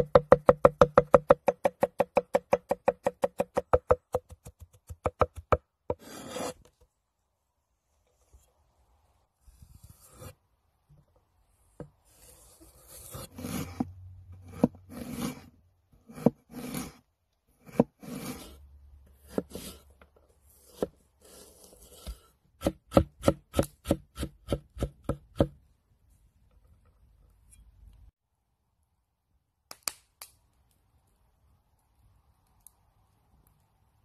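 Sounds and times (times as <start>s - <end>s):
cleaver chopping: 0.0s - 5.6s, 22.6s - 25.6s
cleaver slicing on wooden board: 5.9s - 6.6s, 12.1s - 15.5s, 16.1s - 17.0s, 17.6s - 18.6s, 19.2s - 19.8s.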